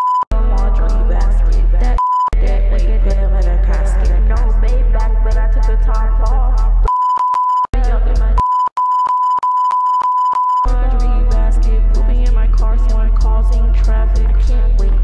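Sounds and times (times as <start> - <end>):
high-pitched censor bleep: 0.0 - 0.3, 8.4 - 10.7
rap song with heavy bass: 0.3 - 6.9, 7.7 - 8.4, 10.7 - 15.0.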